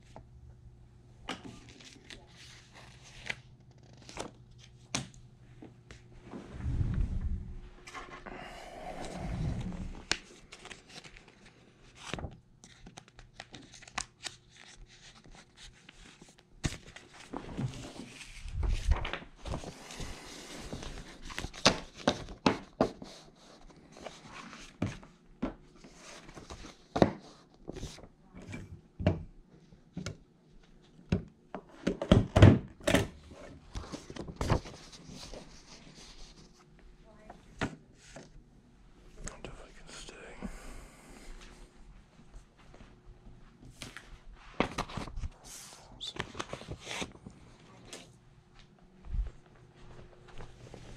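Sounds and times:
paper rustling and crinkling: 0:01.5 - 0:04.8, 0:09.8 - 0:25.1, 0:25.8 - 0:28.1, 0:33.4 - 0:36.6, 0:43.7 - 0:48.1.

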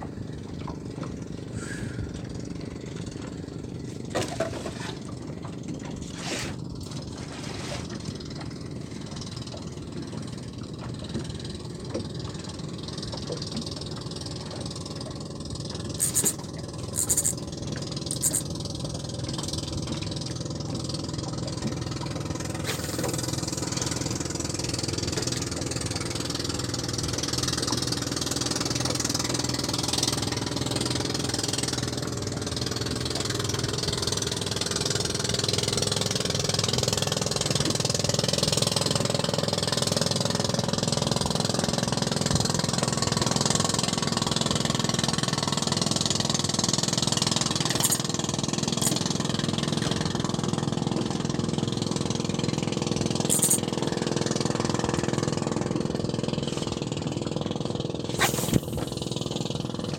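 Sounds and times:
boat motor humming: 0:00.0 - 0:59.9
rushing hiss: 0:58.2 - 0:58.8.

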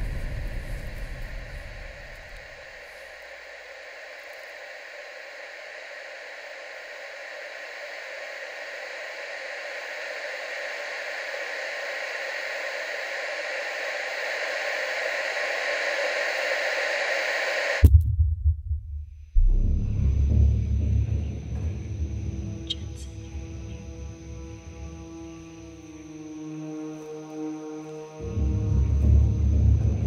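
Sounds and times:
deep low boom: 0:00.0 - 0:02.5, 0:17.8 - 0:22.6
static-like hiss: 0:00.0 - 0:17.8.

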